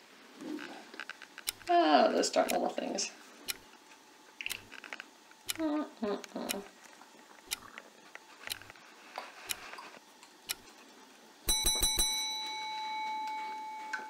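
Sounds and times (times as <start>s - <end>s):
small clicks and scrapes: 0.4s - 1.7s, 3.5s - 5.6s, 6.5s - 10.9s
bell-like ring: 11.5s - 14.0s.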